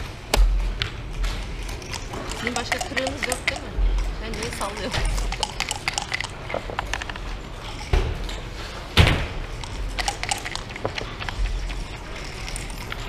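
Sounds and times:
checkers clicking on board: 1.6 - 7.3, 9.6 - 13.0.

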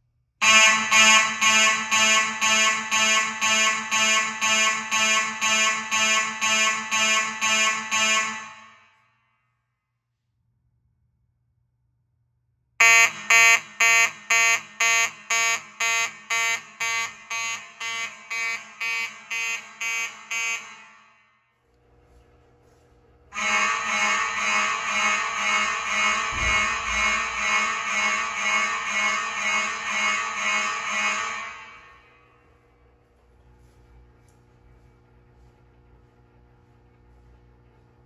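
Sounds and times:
fire alarm horn pulsing: 0.4 - 9.0, 12.8 - 32.6.

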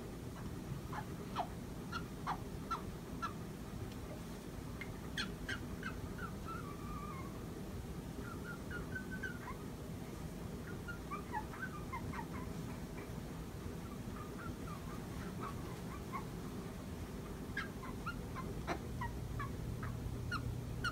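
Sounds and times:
cockatoo chirping and calling: 0.4 - 3.4, 5.1 - 7.4, 8.2 - 9.7, 10.6 - 13.1, 13.8 - 16.6, 17.4 - 20.9.

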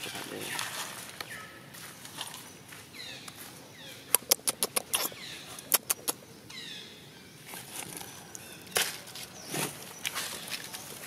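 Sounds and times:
dry leaves crackling: 0.0 - 2.5, 7.5 - 11.0.

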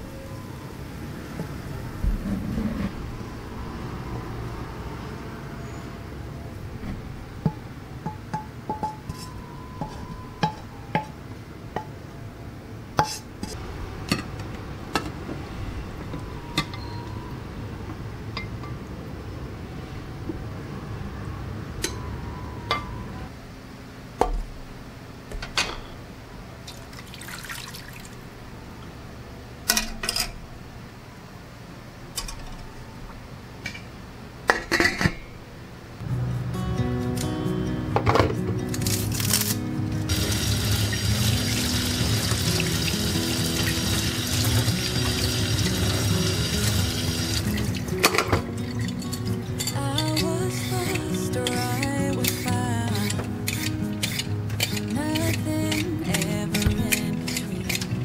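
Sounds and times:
porcelain dishes clinking: 34.5 - 35.3.

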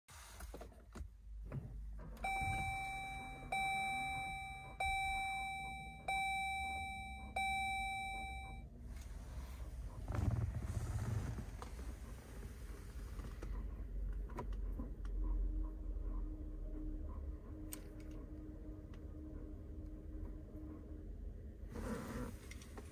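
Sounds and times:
low rumble: 1.8 - 22.9
dashboard chime dinging: 2.2 - 8.6.

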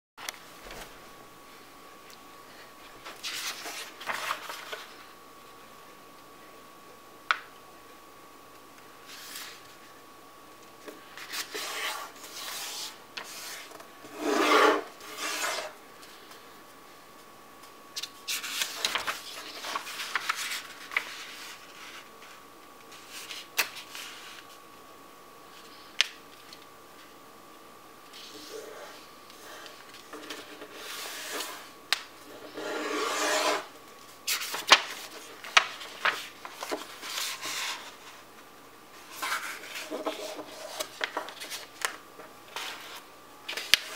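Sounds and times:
paper being folded and creased: 3.0 - 5.0, 18.0 - 24.5, 28.1 - 31.7, 34.3 - 38.2, 39.0 - 43.9
fingers rubbing along paper fold: 18.4 - 22.0.

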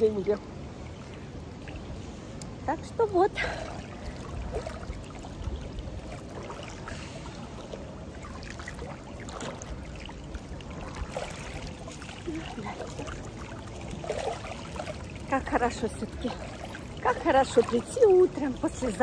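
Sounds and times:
pool water splashing: 0.0 - 19.0.

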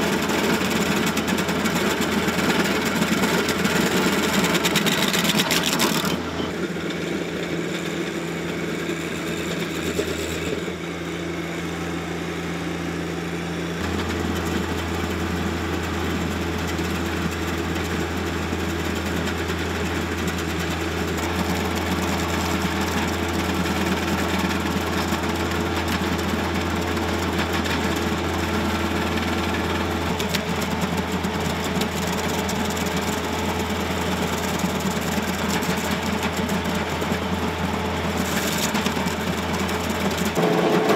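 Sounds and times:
stump grinder chewing wood: 0.0 - 7.0, 20.2 - 40.9
tractor diesel engine: 0.0 - 40.9.

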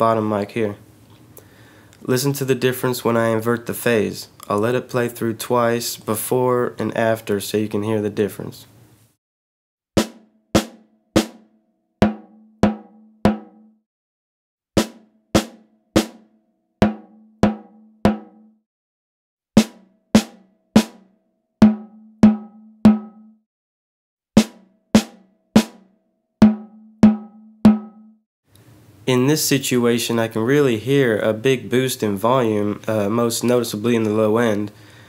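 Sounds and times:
snare drum hits: 10.0 - 11.4, 12.0 - 13.6, 14.8 - 16.2, 16.8 - 18.4, 19.6 - 21.0, 21.6 - 23.2, 24.4 - 25.8, 26.4 - 28.0.

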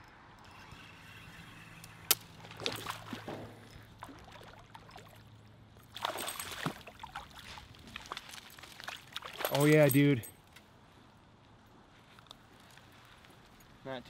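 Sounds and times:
fish splashing in water: 2.3 - 5.3, 5.9 - 9.5.

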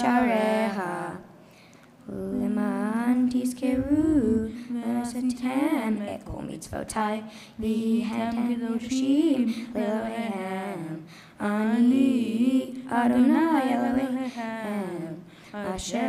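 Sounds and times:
breath: 1.4 - 2.0, 7.3 - 7.6, 11.0 - 11.4, 15.3 - 15.6.

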